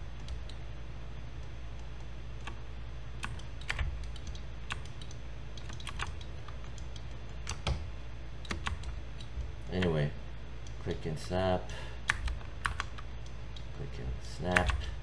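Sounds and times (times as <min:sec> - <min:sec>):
low steady hum: 0:00.0 - 0:15.0
keyboard and mouse clicking: 0:03.2 - 0:07.8, 0:08.4 - 0:09.9, 0:12.1 - 0:13.8, 0:14.5 - 0:14.9.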